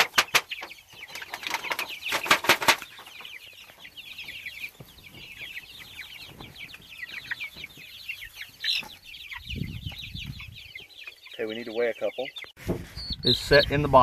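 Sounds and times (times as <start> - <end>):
chicks peeping: 0.0 - 14.0
foil pan crinkling and rattling: 1.1 - 2.9.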